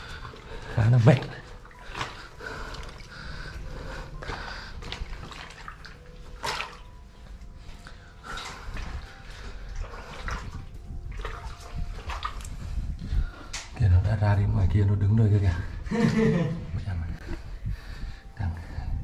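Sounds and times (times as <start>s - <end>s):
water splashing or trickling: 0.0s - 13.8s.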